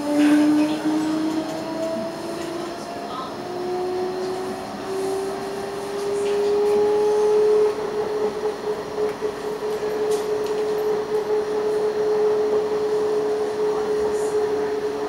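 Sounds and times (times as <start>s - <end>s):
tram rolling on track: 0.0s - 15.0s
steady mid-pitched drive tone: 0.5s - 15.0s.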